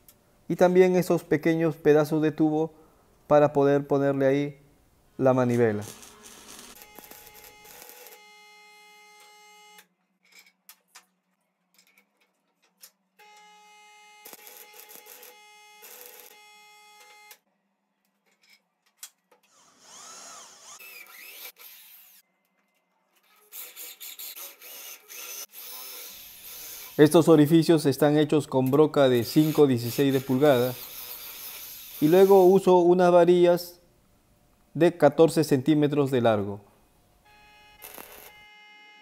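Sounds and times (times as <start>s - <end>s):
arc welder humming and crackling: 5.8s - 9.9s, 13.2s - 17.4s, 37.3s - 39.0s.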